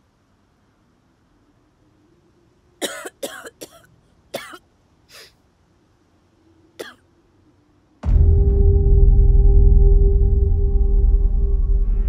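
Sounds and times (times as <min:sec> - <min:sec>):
woman coughing: 0:02.8 - 0:04.6.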